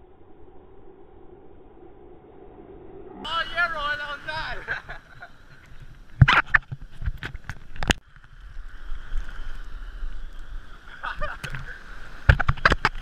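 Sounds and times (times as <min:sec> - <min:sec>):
muffled hiss: 0:03.3 - 0:06.9
water sloshing against camera housing: 0:05.5 - 0:08.3.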